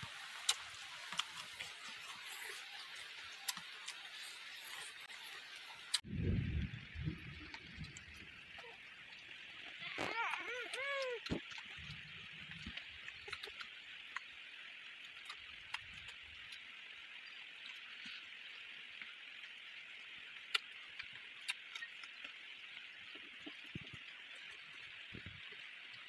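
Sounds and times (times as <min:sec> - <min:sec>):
chewing: 0:00.3 - 0:06.0, 0:09.6 - 0:14.3.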